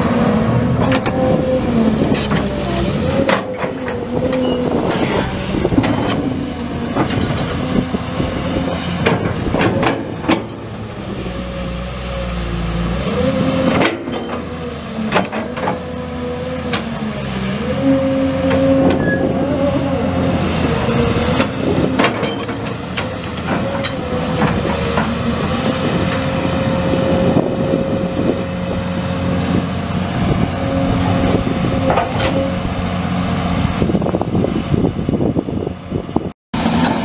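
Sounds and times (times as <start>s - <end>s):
diesel engine whining: 0.0s - 37.0s
clanks and knocks: 9.0s - 10.6s, 15.1s - 15.8s.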